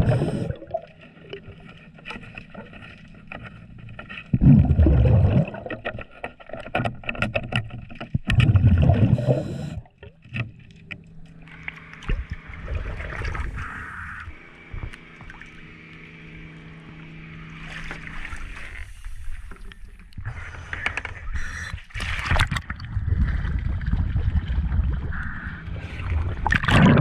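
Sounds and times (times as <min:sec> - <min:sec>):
exhaled bubbles rumbling underwater: 0:00.0 - 0:02.7, 0:04.3 - 0:15.7, 0:22.3 - 0:27.0
steady low hum: 0:00.0 - 0:05.7, 0:08.5 - 0:21.8
water sloshing: 0:14.4 - 0:20.2.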